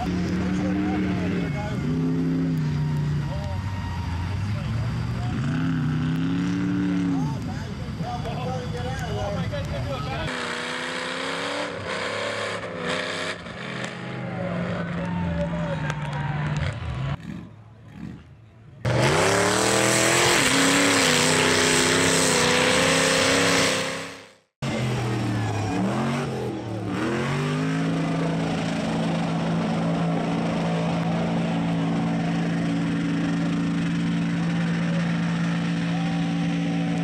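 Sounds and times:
buggy engine revving: 0.0 - 37.0
truck engine revving: 0.0 - 37.0.

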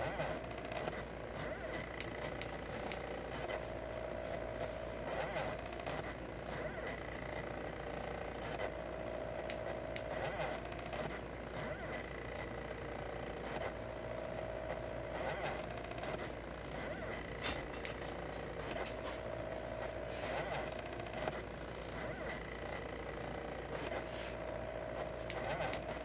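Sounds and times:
steady low hum: 0.0 - 26.0
stepper motors whining: 0.0 - 26.0
sharp ticks: 1.8 - 3.6, 9.4 - 11.1.

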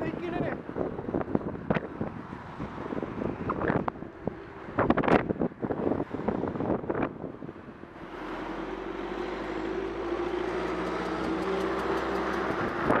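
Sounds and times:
wind noise on microphone: 0.0 - 8.1, 11.0 - 13.0
van engine passing: 0.0 - 13.0.

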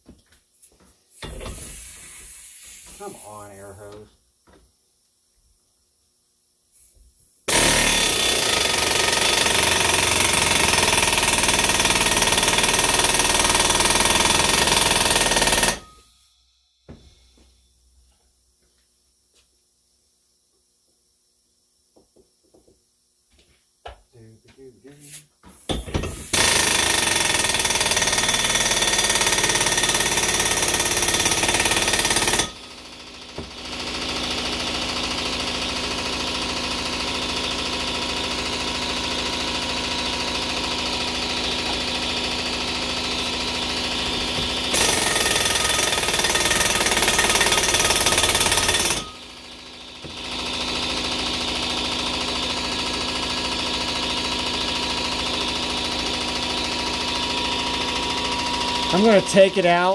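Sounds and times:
air compressor running: 1.1 - 4.0, 7.5 - 16.2, 24.9 - 59.9
impact wrench hammering: 7.5 - 16.0, 25.7 - 35.0, 39.8 - 59.9.

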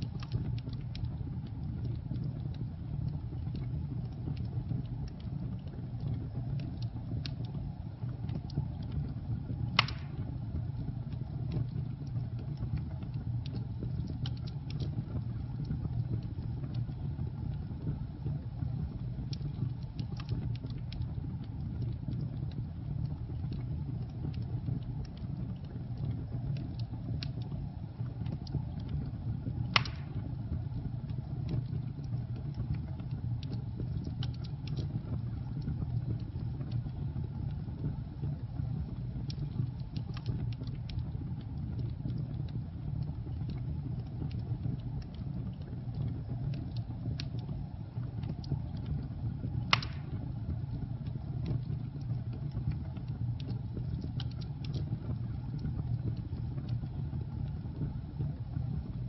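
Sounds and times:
fire flames rumbling: 0.0 - 59.0
small crackles of fire: 0.0 - 59.0
wood popping loudly: 9.8 - 10.2, 29.7 - 30.2, 49.7 - 50.2.

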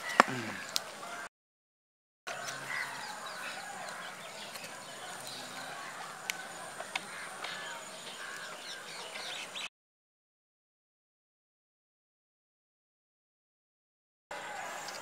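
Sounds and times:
birds chirping: 0.0 - 1.3, 2.3 - 9.7
outdoor background noise: 0.0 - 1.3, 2.3 - 9.7, 14.3 - 15.0.

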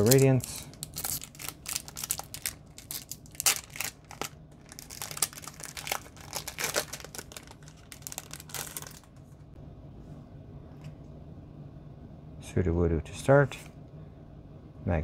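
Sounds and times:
foil wrapper crinkling: 0.0 - 9.2.

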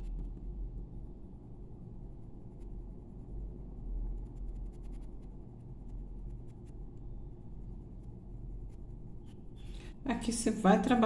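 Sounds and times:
low steady rumble: 0.0 - 11.0
pencil scratching on paper: 4.0 - 9.8.

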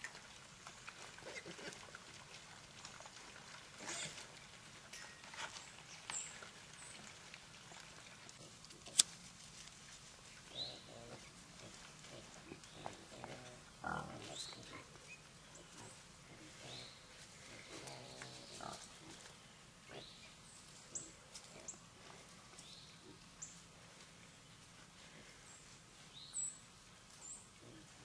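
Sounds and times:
hogs grunting: 1.0 - 2.0, 3.0 - 4.3, 10.5 - 15.0, 15.6 - 20.2.

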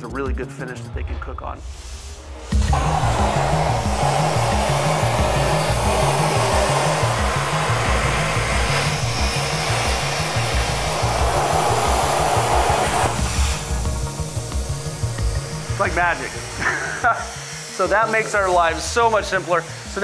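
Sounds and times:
plasma cutter hissing: 1.6 - 20.0.

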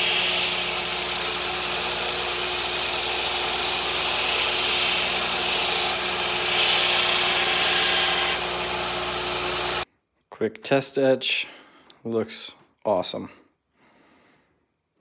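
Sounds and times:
belt grinder motor hum: 0.0 - 9.8.

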